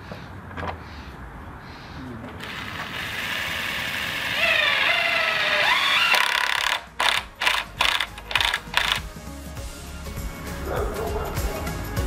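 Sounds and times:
cordless drill whining: 0:02.4 - 0:09.0.

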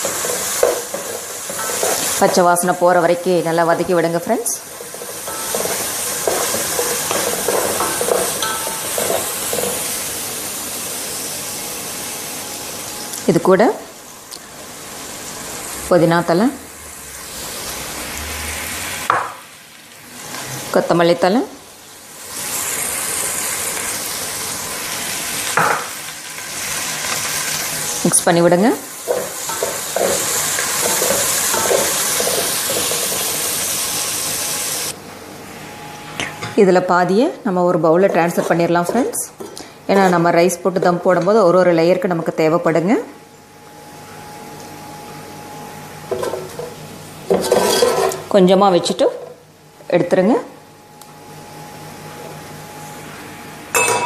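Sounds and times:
spoon stirring and scraping pot: 0:00.0 - 0:02.6, 0:04.5 - 0:09.9, 0:29.1 - 0:33.4, 0:38.0 - 0:40.9, 0:47.3 - 0:48.3
masala sizzling in hot oil: 0:00.0 - 0:35.0, 0:37.0 - 0:50.1
metal ladle scraping pot: 0:47.3 - 0:48.2.

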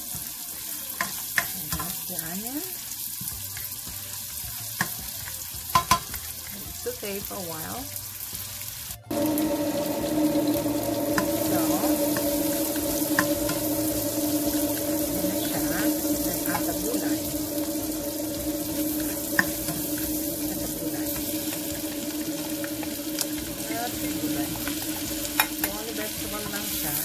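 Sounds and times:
onions frying in oil: 0:00.0 - 0:27.0
spoon tapping a pan: 0:05.7 - 0:06.2, 0:24.5 - 0:26.7
steady hum: 0:09.1 - 0:27.0.

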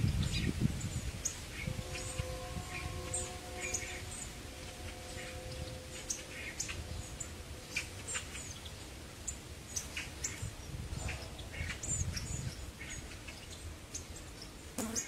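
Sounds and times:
bird call notes: 0:01.6 - 0:08.9.

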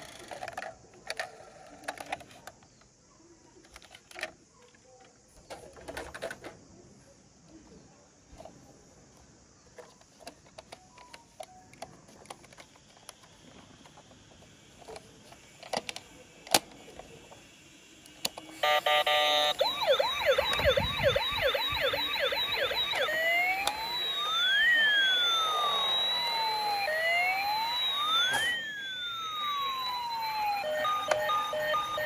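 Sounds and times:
plastic toy clicks and knocks: 0:00.0 - 0:02.9, 0:03.6 - 0:04.8, 0:09.8 - 0:14.1
toy electronic siren wailing: 0:18.6 - 0:32.0.

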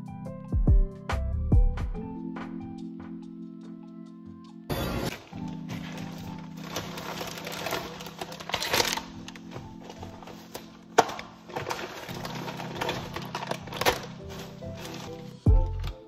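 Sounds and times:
background music: 0:00.0 - 0:16.0
plastic bag crinkling: 0:05.1 - 0:16.0.

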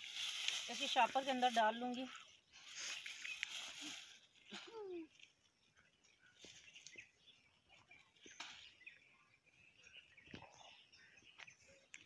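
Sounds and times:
plastic bag rustling: 0:00.0 - 0:02.0.

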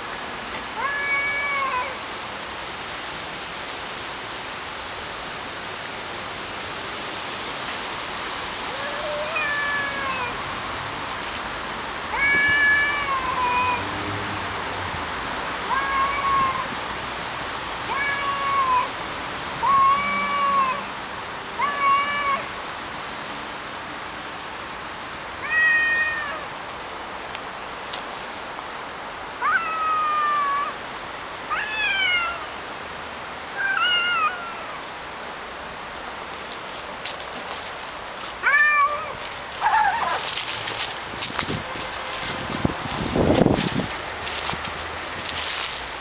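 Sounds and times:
steady background hiss: 0:00.0 - 0:46.0
cats yowling: 0:00.8 - 0:02.0, 0:08.7 - 0:10.6, 0:12.1 - 0:13.9, 0:15.7 - 0:16.7, 0:17.9 - 0:18.9, 0:19.6 - 0:20.9, 0:21.6 - 0:22.5, 0:25.4 - 0:26.5, 0:29.4 - 0:30.8, 0:31.5 - 0:32.4, 0:33.6 - 0:34.8, 0:38.4 - 0:40.4.

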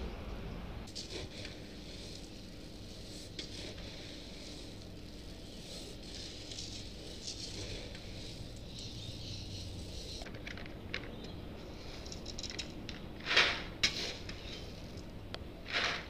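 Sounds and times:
coffee beans pattering into colander: 0:00.8 - 0:16.0
single beans clicking: 0:00.9 - 0:16.0.

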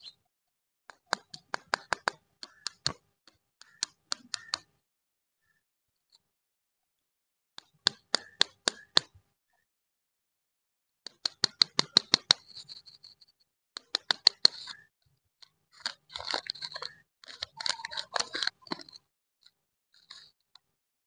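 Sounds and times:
candy wrapper crackling: 0:15.8 - 0:18.8.

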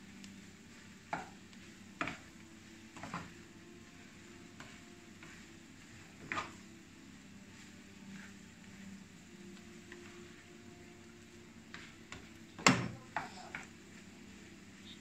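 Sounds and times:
spatula scraping a frying pan: 0:04.0 - 0:06.8.

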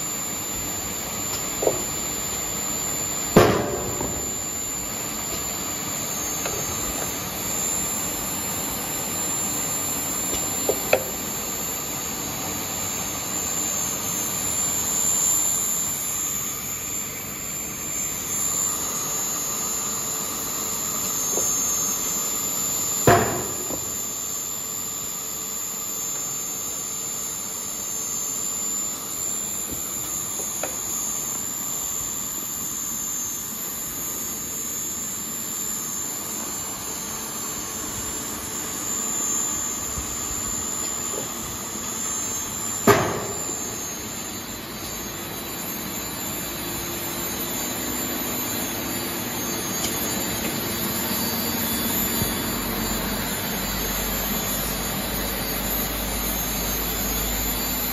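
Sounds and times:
machine whirring hum: 0:00.0 - 0:57.9
thin high whine: 0:00.0 - 0:57.9
sharp knocks: 0:03.4 - 0:04.6, 0:23.1 - 0:24.0, 0:42.8 - 0:43.7.

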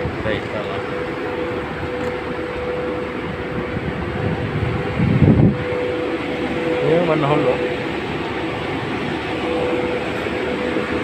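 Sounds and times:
constant humming tone: 0:00.0 - 0:11.0
ship machinery drone: 0:00.0 - 0:11.0
low rumble: 0:02.9 - 0:06.9.

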